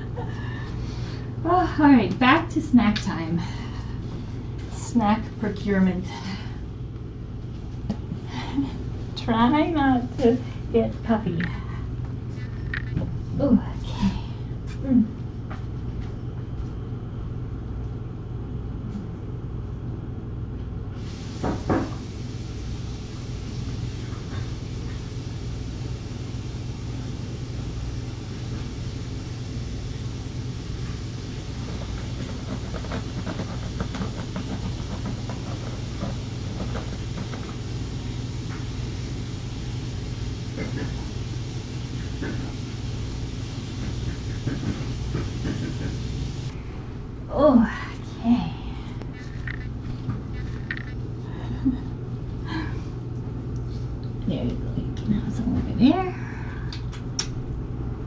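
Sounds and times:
low room hum: 0:00.0 - 0:58.0
kittens moving about: 0:49.0 - 0:51.1.

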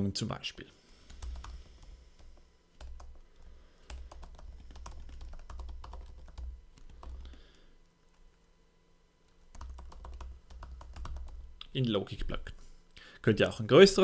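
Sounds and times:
computer keyboard typing: 0:01.1 - 0:08.3, 0:09.3 - 0:11.5.

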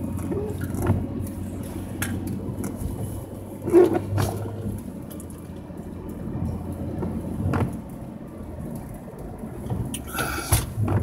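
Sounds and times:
engine and tyre noise: 0:00.0 - 0:11.0
windshield wiper sweeping: 0:00.2 - 0:04.9, 0:06.3 - 0:11.0.

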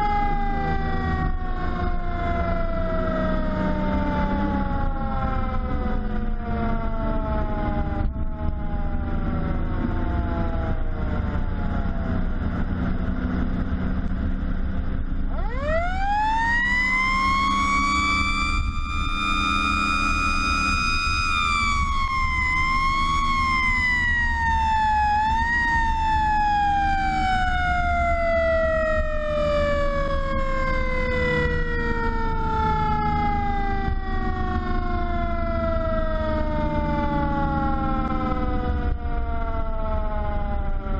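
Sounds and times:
mechanical fire truck siren: 0:00.0 - 0:40.9
truck engine and road rumble: 0:00.0 - 0:40.9.

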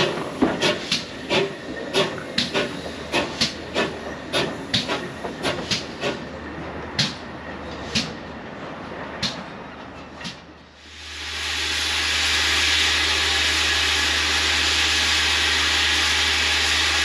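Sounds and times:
train wheels clicking over rail joints: 0:00.0 - 0:10.7
low train rumble: 0:00.0 - 0:17.0.

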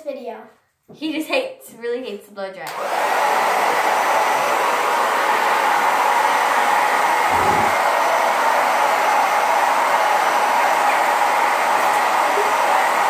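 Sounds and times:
hair dryer blowing: 0:02.7 - 0:13.0.

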